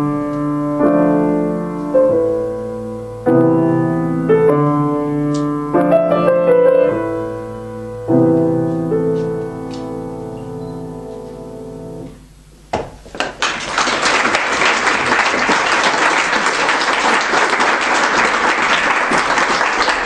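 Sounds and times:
piano chord: 0.0s - 12.3s
audience applause: 13.2s - 20.0s.

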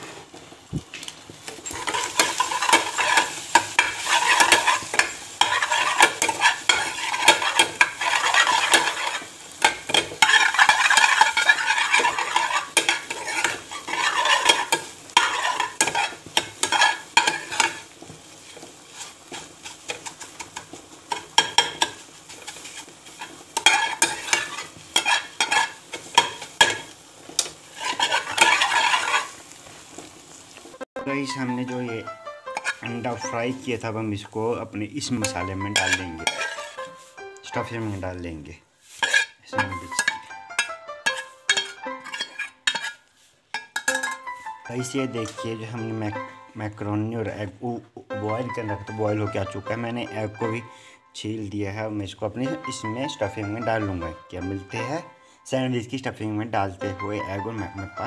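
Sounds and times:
hot oil sizzling: 0.0s - 55.1s, 55.9s - 58.0s
metal ladle scraping a steel pan: 1.5s - 29.4s, 32.4s - 33.6s, 35.2s - 38.0s, 38.8s - 45.4s.

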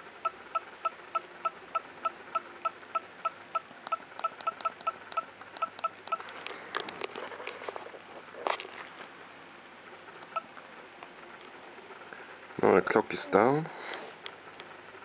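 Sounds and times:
camera beeps: 3.9s - 6.2s.

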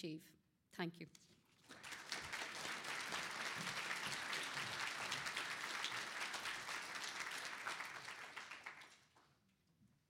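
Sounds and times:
audience applauding: 1.6s - 9.3s.

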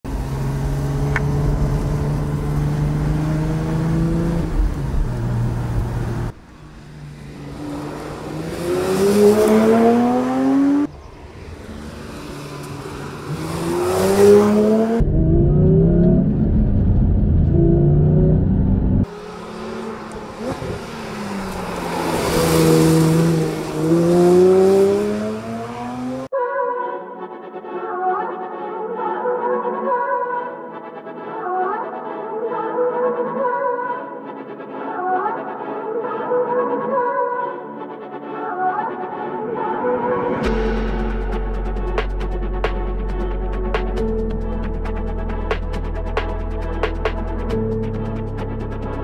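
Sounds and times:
car drive-bys: 0.1s - 26.3s
car engine revving: 0.1s - 26.3s.

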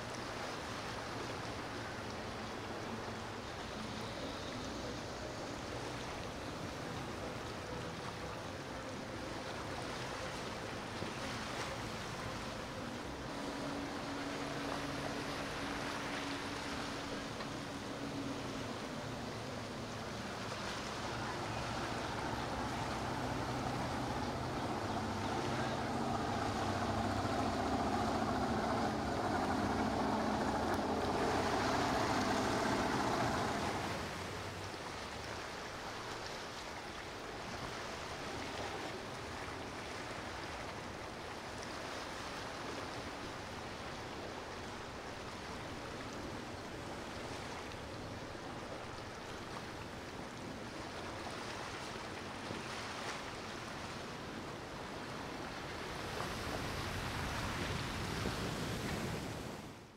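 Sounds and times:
powerboat engine droning: 0.0s - 59.6s
rushing water and wind: 0.0s - 59.9s.

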